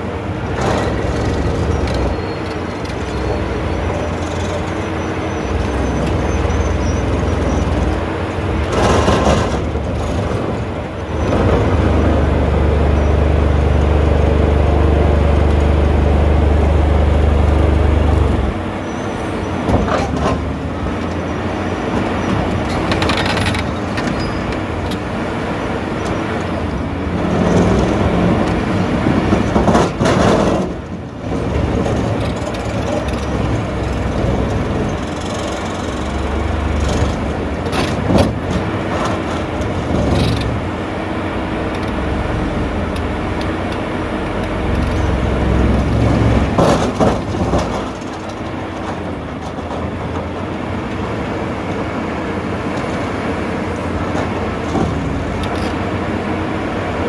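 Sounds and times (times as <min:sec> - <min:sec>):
excavator engine and hydraulic drone: 0:00.0 - 0:57.0.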